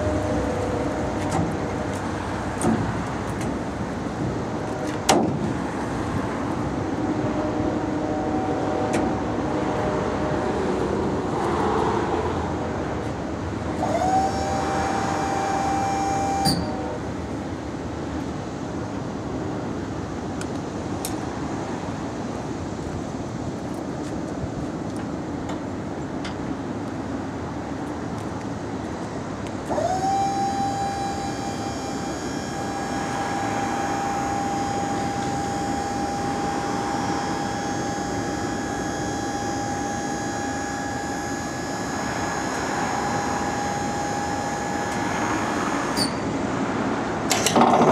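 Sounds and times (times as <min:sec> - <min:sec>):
electric hoist motor whining: 0:13.7 - 0:17.0, 0:29.7 - 0:46.1
hoist stopping with a clunk: 0:47.3 - 0:47.9.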